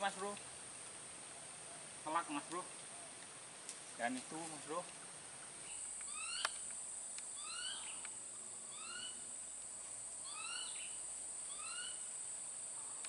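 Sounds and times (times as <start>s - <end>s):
high-pitched insect drone: 5.6s - 13.0s
rising and falling chirping call: 5.7s - 6.6s, 7.4s - 8.1s, 8.7s - 9.3s, 10.2s - 12.1s
sharp click: 6.0s - 7.3s.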